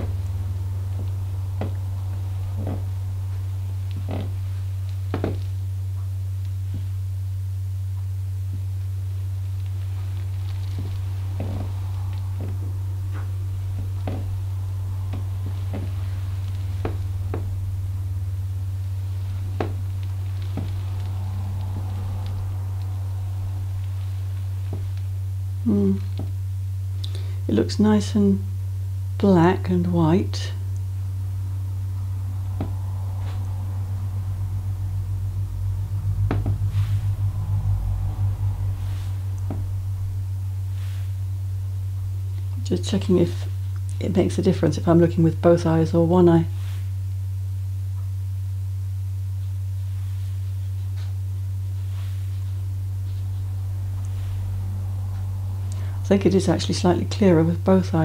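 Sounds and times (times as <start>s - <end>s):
faint floor knocks and creaks: 0.0s - 5.6s, 9.7s - 17.8s, 32.4s - 41.1s
low steady hum: 0.0s - 58.0s.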